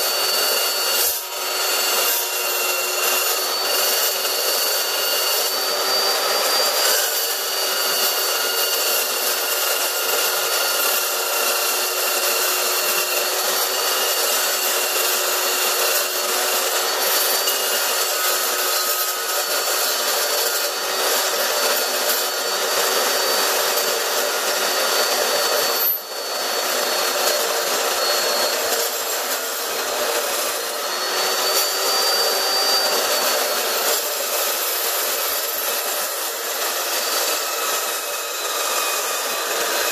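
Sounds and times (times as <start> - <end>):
chop saw cutting steel: 0.0 - 39.9.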